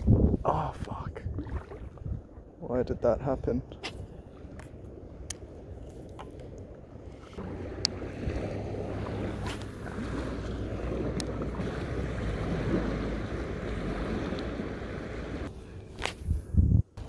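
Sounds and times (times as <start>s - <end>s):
wind buffeting microphone: 0.0s - 2.6s, 6.8s - 17.0s.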